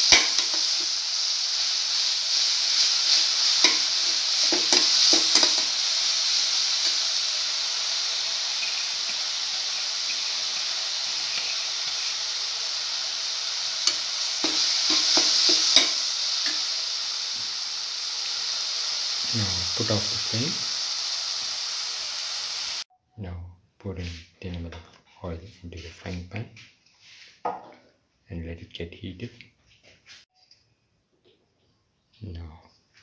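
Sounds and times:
metal spoon scraping pan: 0.0 - 0.9, 2.8 - 5.8, 13.8 - 16.6
food sizzling in frying pan: 0.0 - 22.9.

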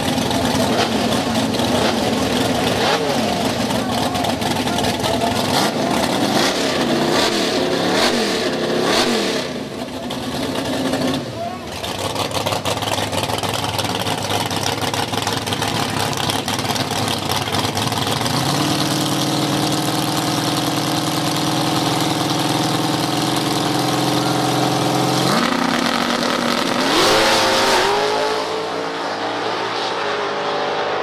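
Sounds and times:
race car engines idling: 0.0 - 28.0
race cars accelerating away: 0.0 - 31.0.

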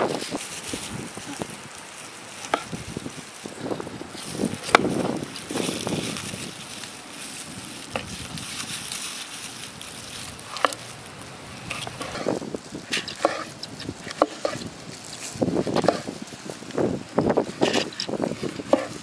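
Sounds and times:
steady background hiss: 0.0 - 19.0
knife chopping on wooden board: 18.7 - 18.9.

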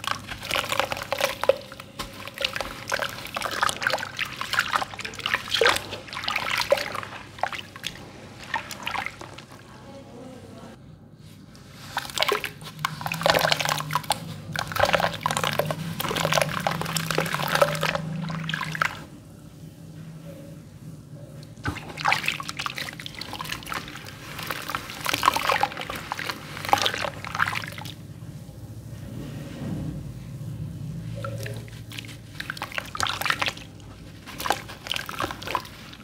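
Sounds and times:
water splashing and sloshing: 0.0 - 36.0.

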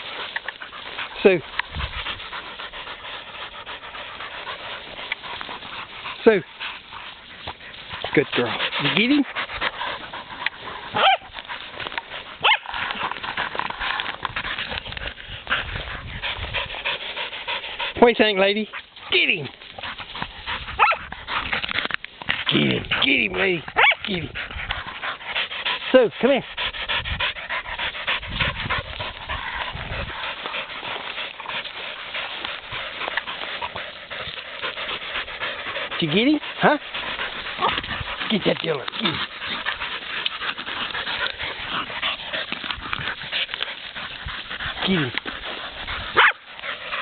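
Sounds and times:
dogs scratching and scuffling: 0.0 - 47.0
dog yelping: 10.9 - 11.3, 12.4 - 12.7, 20.8 - 21.0, 23.8 - 24.0, 46.2 - 46.4.

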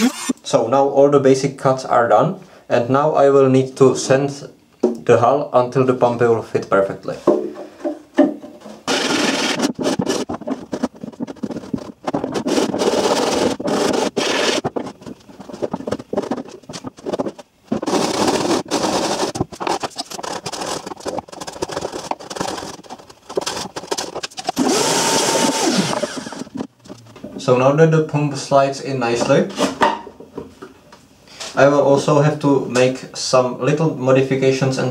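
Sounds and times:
vacuum cleaner running: 0.0 - 0.4, 24.6 - 26.5
hand sanding scraping strokes: 8.9 - 10.4, 11.1 - 14.8.

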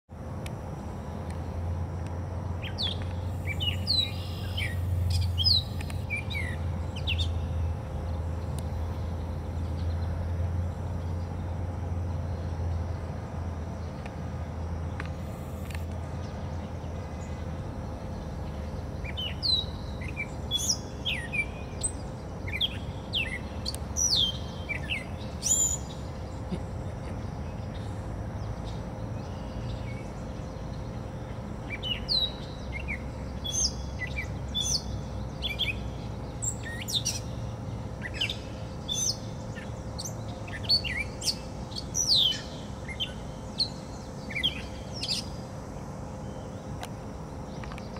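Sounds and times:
catbird singing: 2.6 - 7.6.

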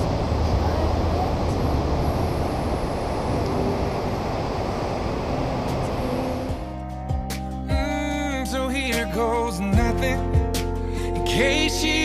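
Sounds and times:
ocean surf: 0.0 - 6.7
wind buffeting microphone: 0.0 - 6.7
low rumble: 0.0 - 8.8.

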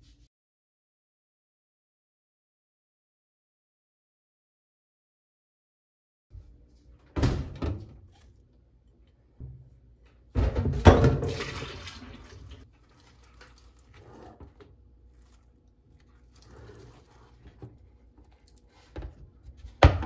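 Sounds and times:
liquid pouring into steel sink: 10.6 - 14.6.

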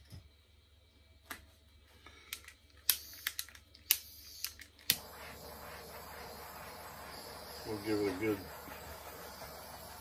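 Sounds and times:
torch clicking: 2.3 - 10.0
torch flame hissing: 2.8 - 10.0.

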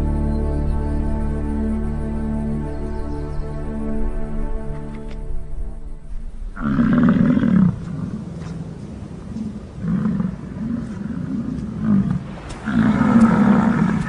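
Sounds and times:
bison bellowing: 6.6 - 8.2.

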